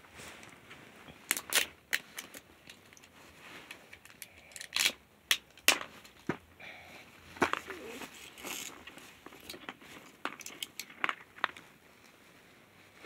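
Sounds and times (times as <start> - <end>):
plastic packaging crinkling: 1.2 - 6.3.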